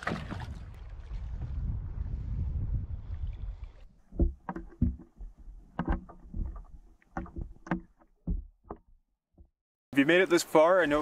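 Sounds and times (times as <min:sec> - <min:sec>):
water knocking against canoe hull: 0:03.9 - 0:09.6.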